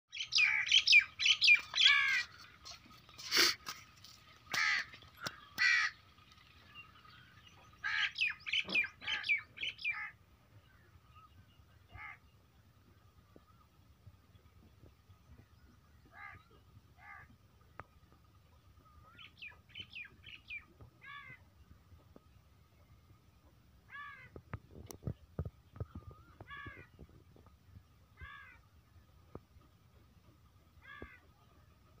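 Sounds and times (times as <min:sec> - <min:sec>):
crows cawing: 0:01.8 - 0:03.8, 0:04.5 - 0:06.0, 0:07.8 - 0:08.3, 0:11.9 - 0:12.2, 0:23.9 - 0:24.4, 0:26.4 - 0:26.9, 0:28.2 - 0:28.6, 0:30.8 - 0:31.3.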